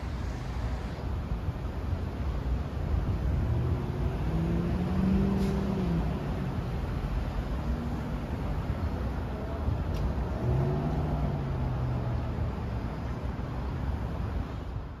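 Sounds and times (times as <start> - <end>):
street traffic rumbling: 0.0 - 15.0
car passing: 3.1 - 14.9.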